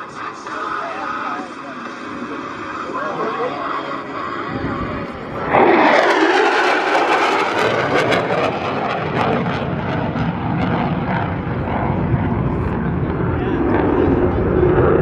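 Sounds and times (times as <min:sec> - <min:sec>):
crackling jet rumble: 0:00.0 - 0:15.0
jet engine fly-by: 0:00.0 - 0:15.0.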